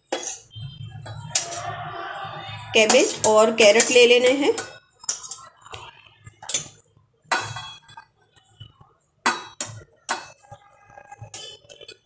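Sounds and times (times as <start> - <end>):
metal spoon scraping steel bowl: 0.0 - 5.8, 10.4 - 12.0.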